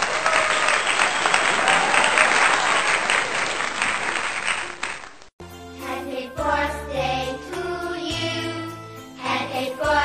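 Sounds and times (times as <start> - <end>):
crowd applauding: 0.0 - 5.3.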